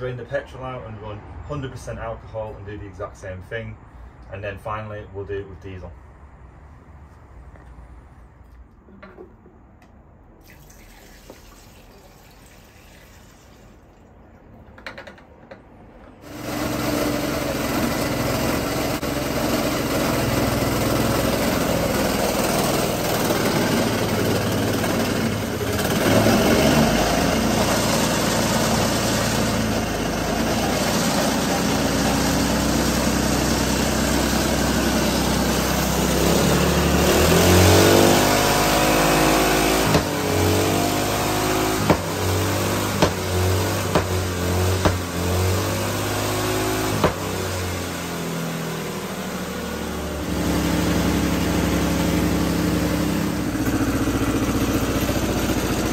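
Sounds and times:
small engine running: 16.2 - 55.9.

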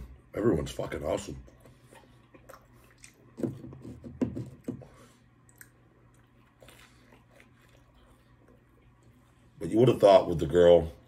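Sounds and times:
man chewing food: 1.4 - 9.6.

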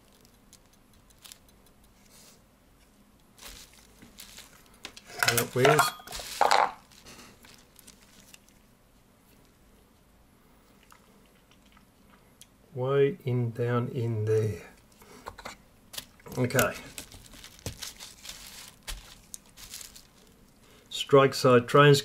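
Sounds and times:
faint handling noise: 0.0 - 10.1, 14.3 - 20.6.

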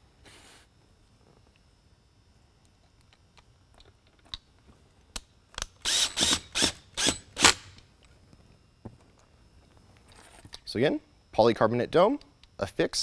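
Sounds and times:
screwdriver clutch ratcheting: 5.8 - 7.7.

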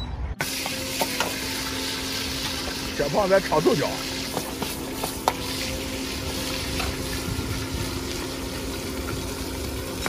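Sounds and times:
food sizzling and bubbling in wok: 0.4 - 10.0
constant low hum: 4.0 - 10.0.

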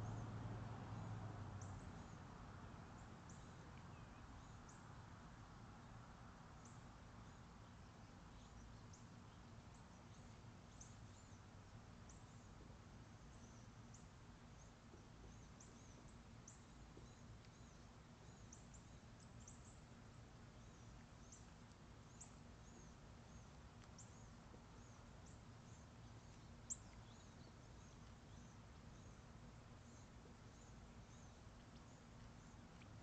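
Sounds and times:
low steady hum: 0.0 - 33.0
faint high bird chirps: 20.5 - 32.6.

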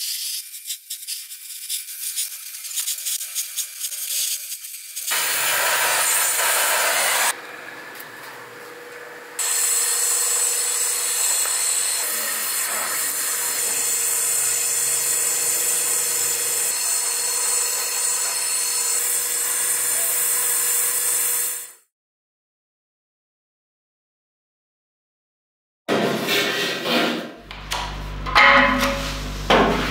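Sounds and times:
welding torch flame hissing: 0.0 - 7.4, 9.4 - 16.7.

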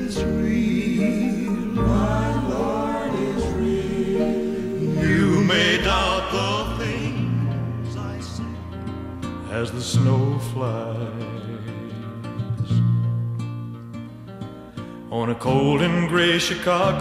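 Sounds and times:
man singing lead: 0.0 - 8.7, 9.4 - 12.8, 15.1 - 17.0
choir singing: 0.0 - 11.3.

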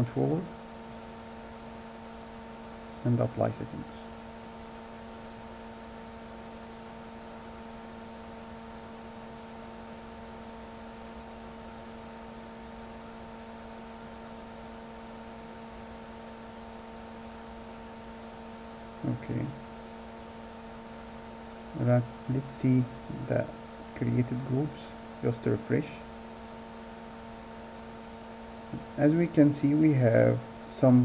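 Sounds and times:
electrical hum: 0.0 - 31.0.

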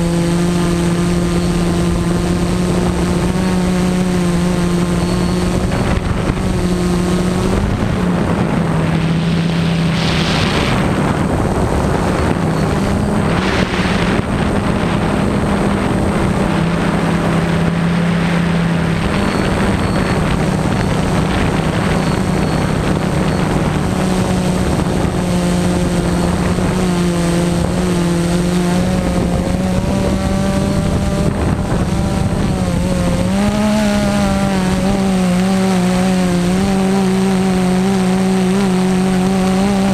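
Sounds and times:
drone propellers buzzing: 0.0 - 39.9
wind gusts: 0.0 - 39.9.

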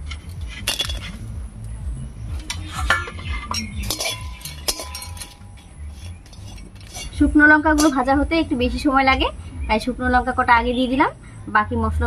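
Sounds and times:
pan ringing: 2.4 - 8.4
metal spatula scraping steel pan: 2.5 - 8.1.

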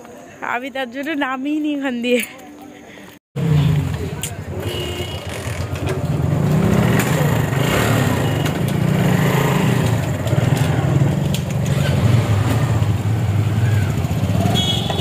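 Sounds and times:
road noise: 2.1 - 15.0
vehicle engine droning: 3.4 - 15.0.

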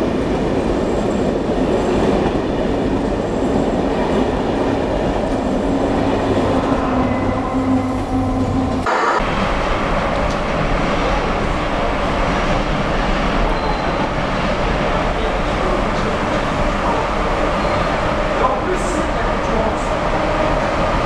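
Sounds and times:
train approaching rumble: 0.0 - 21.0
train rolling rumble: 0.0 - 21.0.

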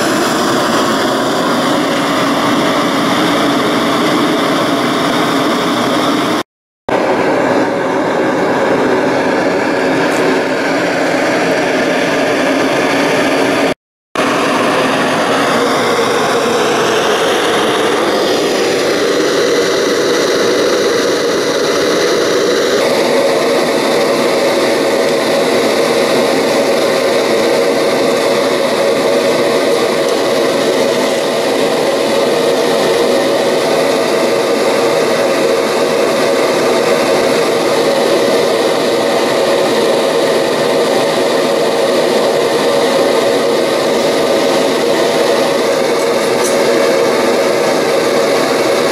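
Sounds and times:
propane torch flame rushing: 0.0 - 48.9.

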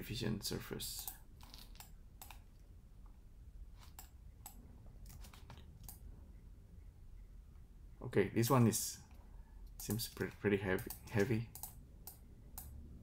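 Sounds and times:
low room hum: 0.0 - 13.0
keyboard and mouse clicks: 1.0 - 2.6, 3.8 - 6.0, 9.6 - 12.8.

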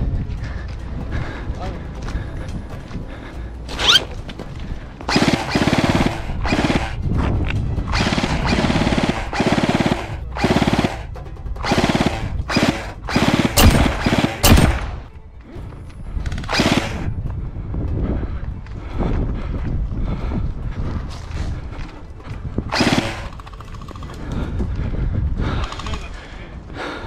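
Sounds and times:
airsoft rifle bursts: 3.8 - 4.1, 5.1 - 7.0, 7.9 - 15.0, 16.3 - 17.1, 22.7 - 24.0
sharp cracks: 5.1 - 7.0, 7.9 - 15.1, 16.3 - 17.1, 22.7 - 24.2.

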